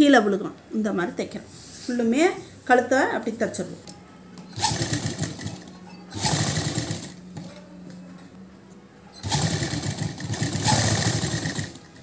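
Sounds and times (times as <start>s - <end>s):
sewing machine stitching: 4.5s - 7.5s, 9.2s - 12.0s.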